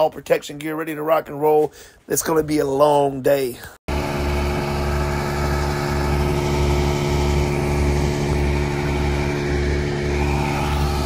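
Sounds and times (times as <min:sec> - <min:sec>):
low throb pulsing: 0:03.9 - 0:11.0
truck engine hum: 0:03.9 - 0:11.0.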